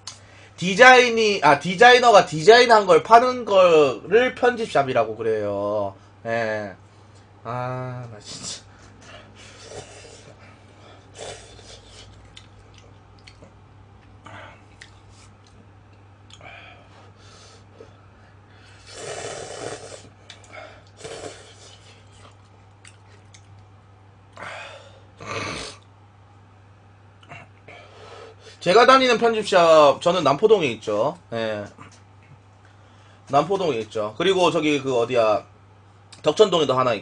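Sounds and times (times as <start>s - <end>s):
steady low hum: 0.0s - 37.0s
man slurping noodles: 9.5s - 10.4s, 11.1s - 12.2s, 18.7s - 20.1s, 20.9s - 22.4s.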